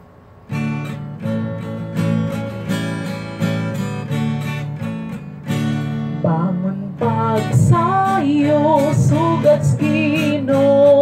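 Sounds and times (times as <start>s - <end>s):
acoustic guitar strumming chords: 0.0s - 11.0s.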